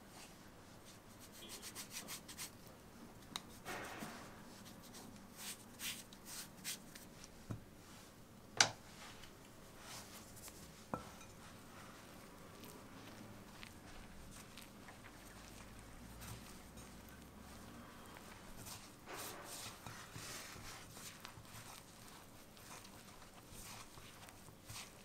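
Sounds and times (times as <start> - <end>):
scraping flour mixture in bowl: 0.9 - 2.6, 9.8 - 25.0.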